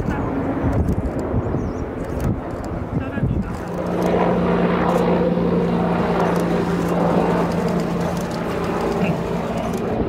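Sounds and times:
helicopter flying past: 0:00.0 - 0:10.0.

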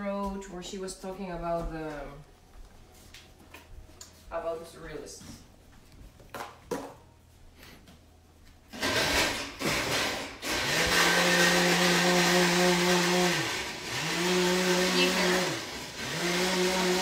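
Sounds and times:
blender crushing ice: 0:08.7 - 0:17.0.

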